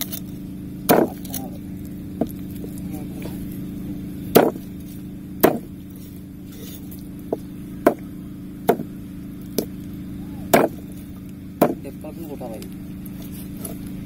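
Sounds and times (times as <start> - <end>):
low hum: 0.0 - 14.0
cleaver chopping on wooden board: 0.9 - 1.5, 4.3 - 4.7, 5.4 - 5.7, 6.6 - 8.1, 8.7 - 8.9, 10.5 - 10.9, 11.6 - 11.9.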